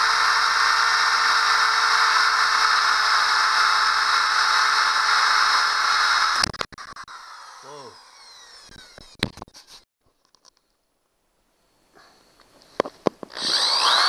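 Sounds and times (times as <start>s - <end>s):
power drill drilling: 0.0s - 9.3s, 13.3s - 14.0s.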